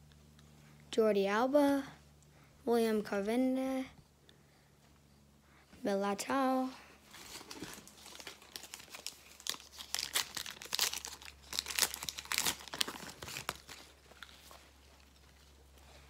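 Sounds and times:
plastic wrapper crinkling: 0:07.1 - 0:15.6.

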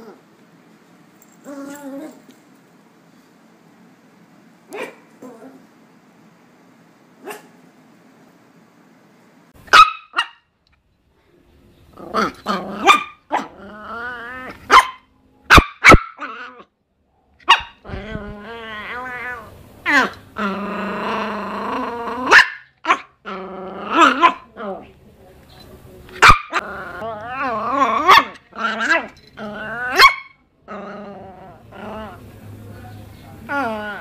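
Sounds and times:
dog growling: 0:01.4 - 0:02.2, 0:05.2 - 0:05.7, 0:11.9 - 0:14.7, 0:17.8 - 0:25.0, 0:26.5 - 0:32.4, 0:33.4 - 0:34.0
dog barking: 0:04.7 - 0:05.1, 0:07.2 - 0:07.6, 0:09.7 - 0:10.4, 0:12.8 - 0:13.5, 0:14.7 - 0:16.3, 0:17.4 - 0:17.8, 0:22.3 - 0:23.1, 0:26.2 - 0:26.6, 0:30.0 - 0:30.4.

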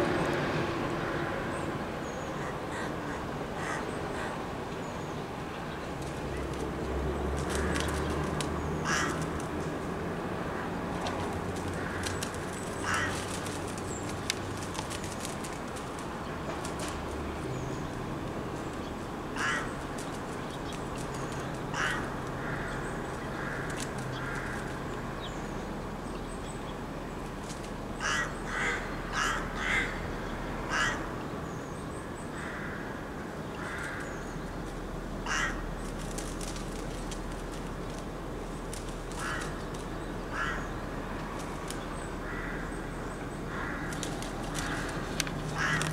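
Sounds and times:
rooks cawing: 0:02.4 - 0:04.4, 0:08.7 - 0:09.5, 0:11.5 - 0:13.8, 0:19.3 - 0:20.0, 0:21.2 - 0:24.9, 0:28.0 - 0:31.3, 0:32.3 - 0:34.4, 0:35.2 - 0:37.7, 0:39.1 - 0:41.5, 0:42.1 - 0:45.9.

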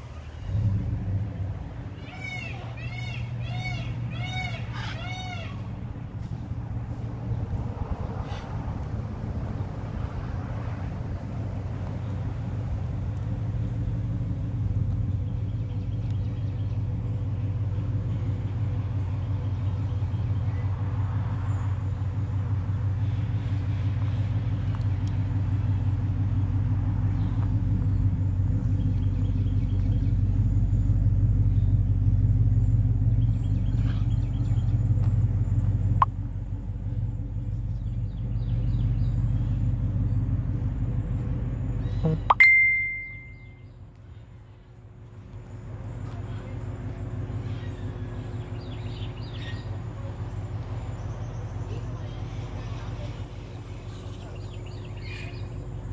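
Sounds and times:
steady low rumble: 0:00.0 - 0:21.0, 0:21.7 - 0:55.9
faint high chirps: 0:41.9 - 0:43.7.

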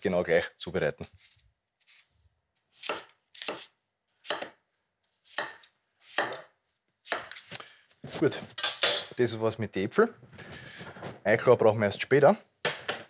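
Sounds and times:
knife slicing apples on board: 0:02.8 - 0:04.6, 0:05.3 - 0:08.6.

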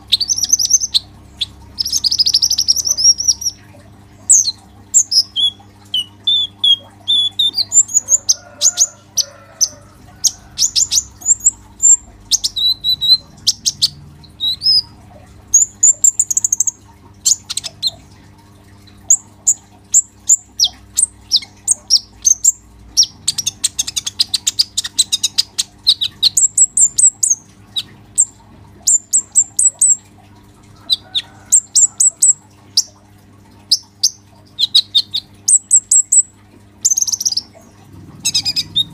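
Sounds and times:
sunbird chirping and trilling: 0:00.1 - 0:03.6, 0:04.3 - 0:18.0, 0:33.7 - 0:37.5, 0:38.2 - 0:38.9.

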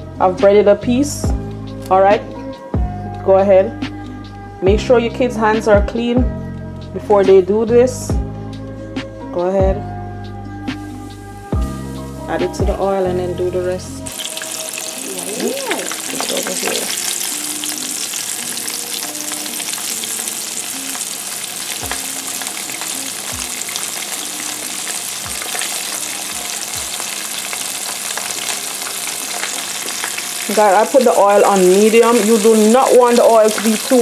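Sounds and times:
fish deep-frying in oil: 0:14.1 - 0:34.0.

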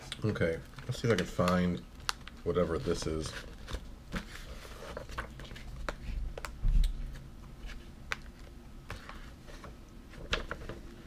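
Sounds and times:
wrapper and paper rustling: 0:00.4 - 0:05.9.

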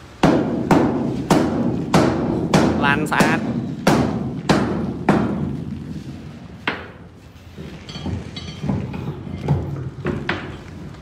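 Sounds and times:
knocks echoing in steel container: 0:00.2 - 0:05.7.

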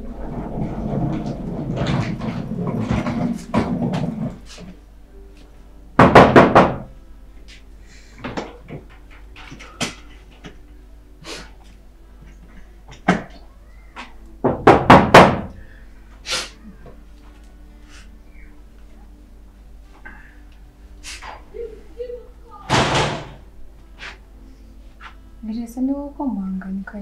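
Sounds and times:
knocking on a door: 0:06.0 - 0:06.9, 0:14.4 - 0:15.6.

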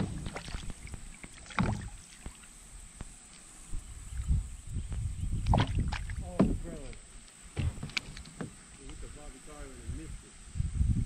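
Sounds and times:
water splashing: 0:00.0 - 0:04.3, 0:05.4 - 0:09.3
knocks on kayak hull: 0:05.5 - 0:06.8, 0:07.6 - 0:08.6.

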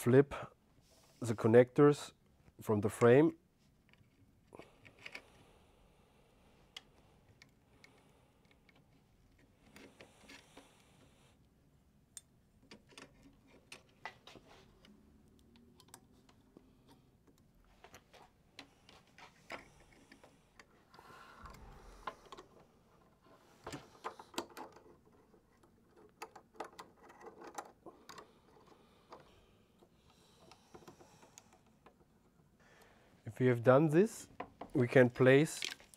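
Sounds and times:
hands handling hose connectors: 0:34.4 - 0:35.9.

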